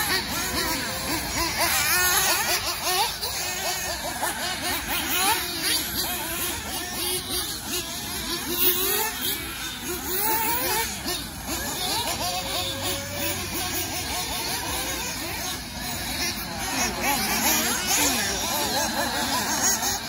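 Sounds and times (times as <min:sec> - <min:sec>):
rc car engines revving: 0:00.0 - 0:20.0.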